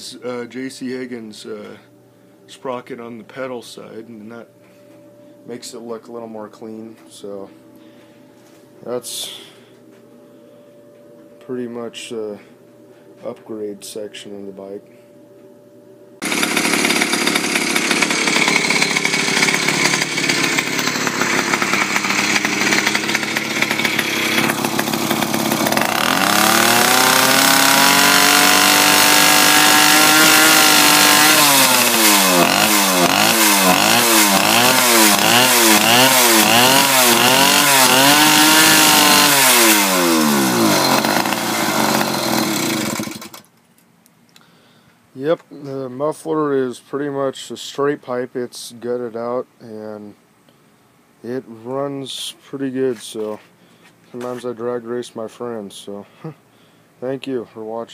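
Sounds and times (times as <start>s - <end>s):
two-stroke engine revving: 16.2s - 43.4s.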